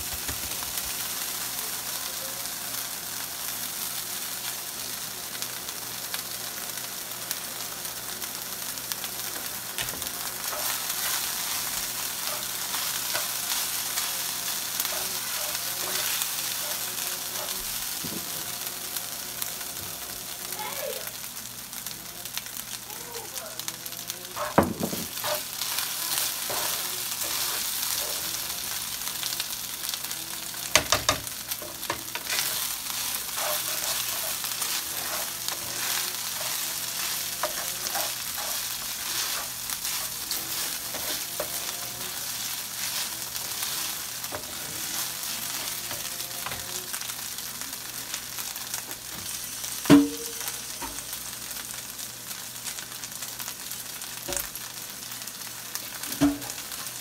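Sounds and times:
rice sizzling in oil: 0.0s - 57.0s
spoon scraping a pan: 10.4s - 17.6s, 24.3s - 29.4s, 30.0s - 46.7s.

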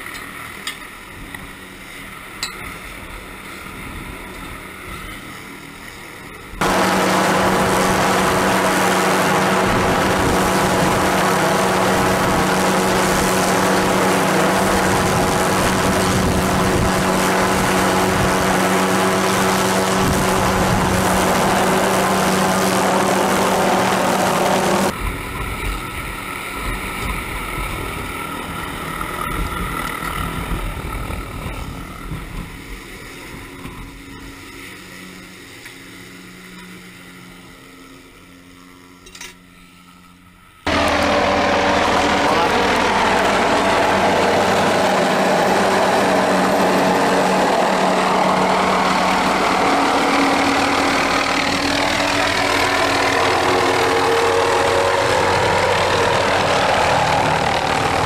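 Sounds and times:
drill rig engine running: 6.6s - 25.0s, 40.7s - 58.0s
wind buffeting microphone: 6.6s - 33.9s.

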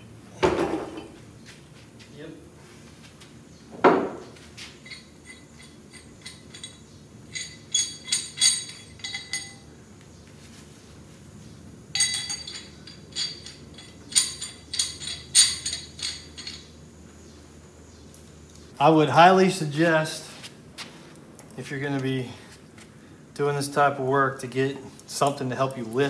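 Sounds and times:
metal chain clinking: 4.8s - 9.7s, 11.9s - 16.8s.

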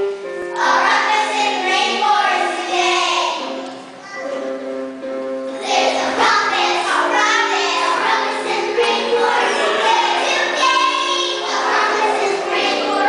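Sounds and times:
young children singing: 0.4s - 4.6s, 5.5s - 13.0s.

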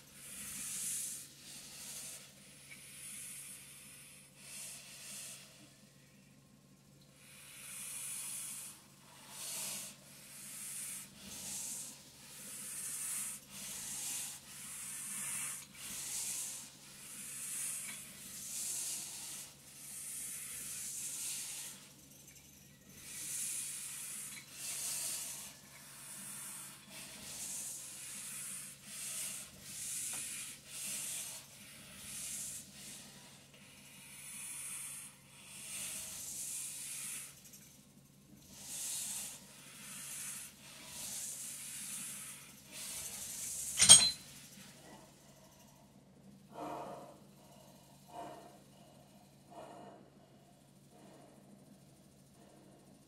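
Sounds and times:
faint motor hum: 0.0s - 53.0s
hissing breaths through mask: 38.5s - 43.8s.

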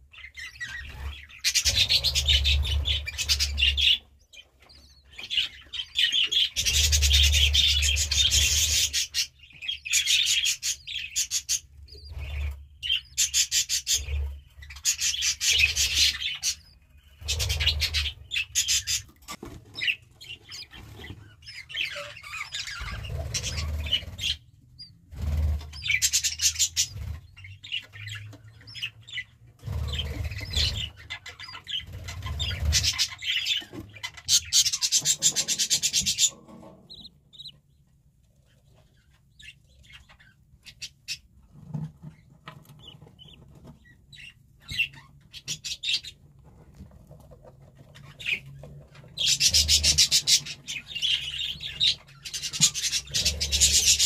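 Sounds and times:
budgerigar chattering: 29.7s - 37.5s.

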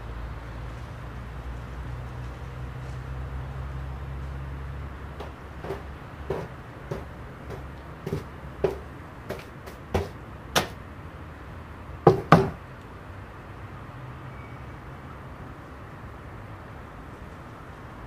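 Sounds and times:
footsteps: 5.1s - 10.8s, 12.1s - 12.6s
knocks on wooden door: 5.2s - 10.8s, 12.1s - 12.6s.

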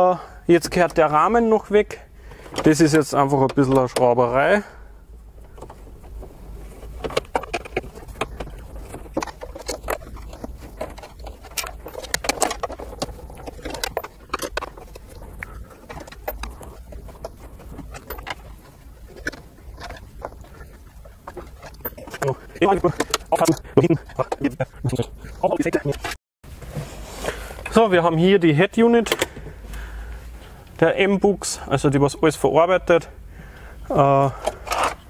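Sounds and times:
low steady hum: 0.0s - 35.0s
screws and plastic rattling: 5.4s - 26.2s, 34.3s - 35.0s.

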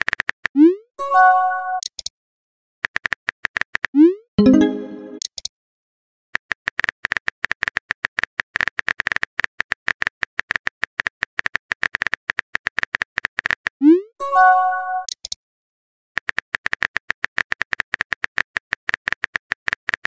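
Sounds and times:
message chime: 4.4s - 5.2s.

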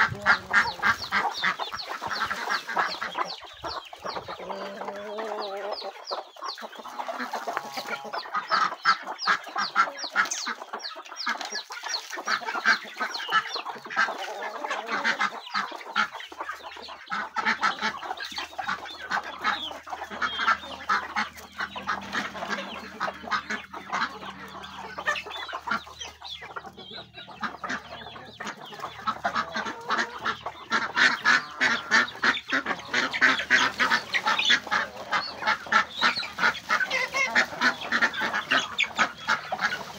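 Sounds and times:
beaks pecking at the ground: 0.0s - 39.9s
chickens clucking: 0.0s - 39.9s.

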